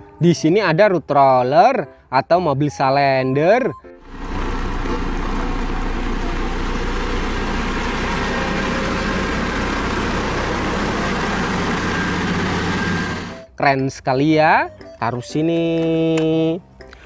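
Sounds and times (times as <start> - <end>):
road roller diesel engine: 4.0 - 13.6.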